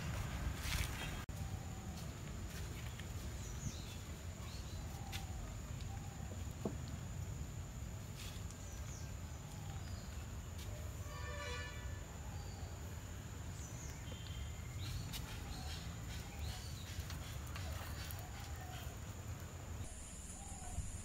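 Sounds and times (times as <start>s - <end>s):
low wind rumble: 19.5s - 21.0s
bird chirps: 19.8s - 21.0s.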